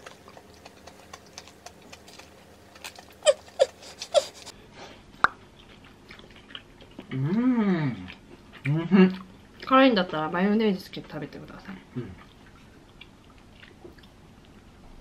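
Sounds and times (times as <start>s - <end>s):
soft chewing: 0.0s - 10.3s, 10.9s - 15.0s.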